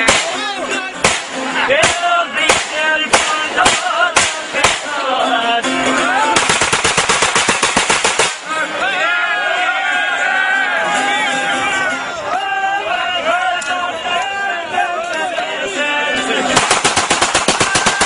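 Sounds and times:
men singing with music: 0.0s - 6.5s, 8.3s - 16.8s
handgun shots: 1.0s - 4.9s, 6.4s - 8.5s, 16.6s - 18.0s
rapid automatic gunfire: 1.0s - 4.9s, 6.4s - 8.5s, 16.6s - 18.0s.

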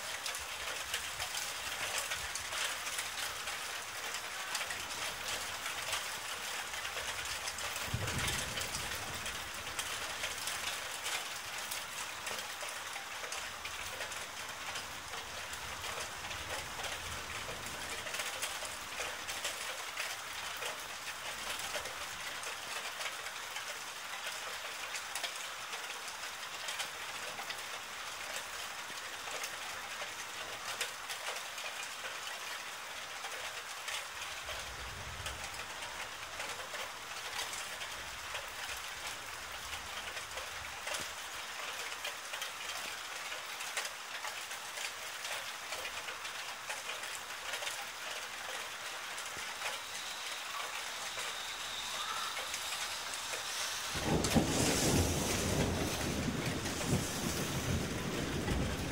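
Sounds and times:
steady rain falling: 0.0s - 58.9s
distant thunder rumble: 50.5s - 58.9s.

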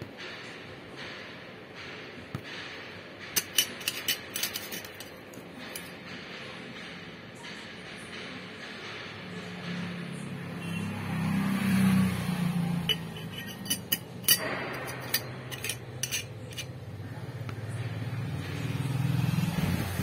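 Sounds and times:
metal lid clinking and scraping: 3.3s - 6.0s, 12.7s - 16.8s
engine humming low: 9.9s - 20.0s.

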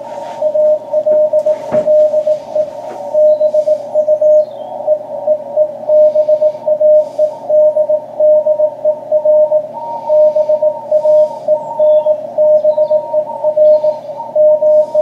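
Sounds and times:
morse code tone: 0.0s - 15.0s
radio band noise hiss: 0.0s - 15.0s.

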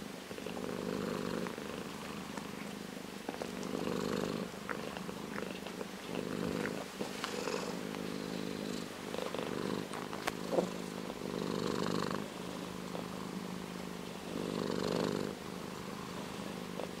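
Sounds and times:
cat purring: 0.0s - 17.0s.

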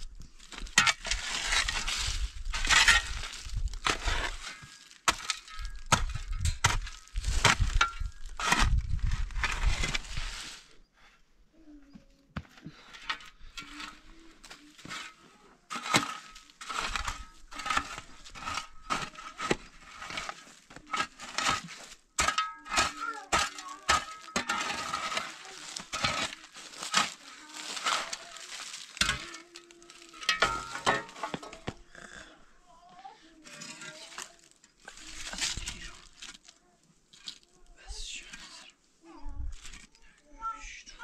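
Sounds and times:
person speaking: 22.7s - 34.4s.

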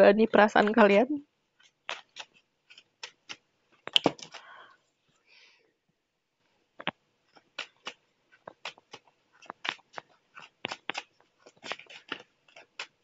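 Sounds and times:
cards being shuffled: 1.6s - 4.5s, 6.8s - 13.0s.

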